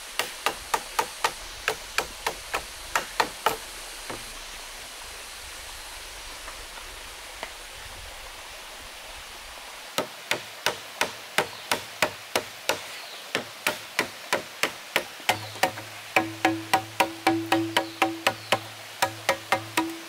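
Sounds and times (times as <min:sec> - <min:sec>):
running water: 0:00.0 - 0:20.0
machete chopping bamboo: 0:00.2 - 0:04.2, 0:10.0 - 0:20.0.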